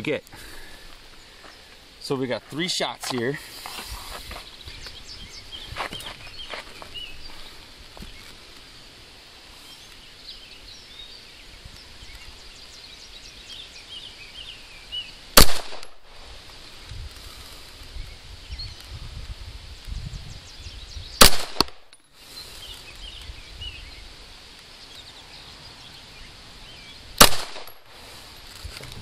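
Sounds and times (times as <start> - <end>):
faint birds chirping: 0.0 - 15.4, 16.2 - 29.0
pistol shot with echo: 15.4 - 16.0, 21.2 - 21.8, 27.2 - 27.8.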